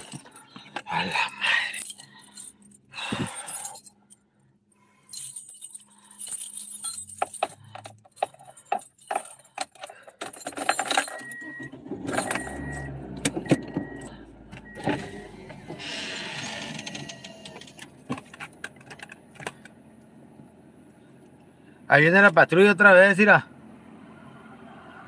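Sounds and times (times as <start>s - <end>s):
handling rattles: 0.0s - 4.2s, 5.1s - 11.4s, 12.1s - 12.8s
keys jangling: 0.0s - 4.2s, 5.1s - 11.5s, 12.1s - 12.9s.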